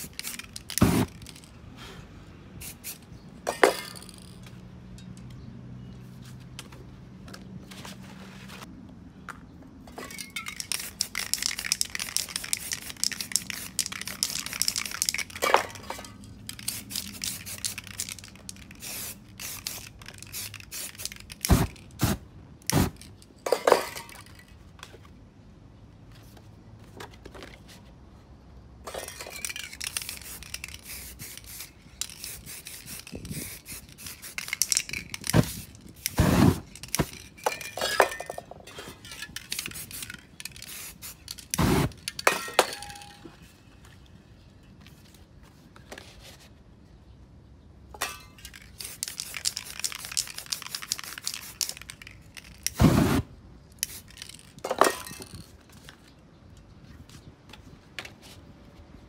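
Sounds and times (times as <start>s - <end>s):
spray paint cans hissing: 0.0s - 1.5s, 2.6s - 4.5s, 10.0s - 24.5s, 28.9s - 38.4s, 39.0s - 43.1s, 48.0s - 55.5s.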